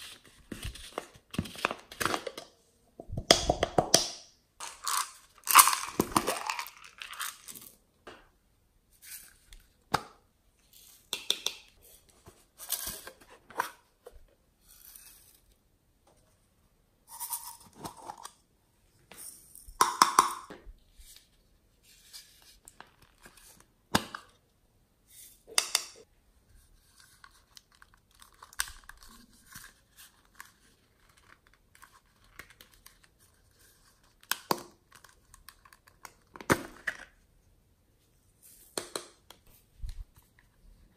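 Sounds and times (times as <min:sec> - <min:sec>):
small plastic pieces spilling into tray: 0:04.6 - 0:07.7.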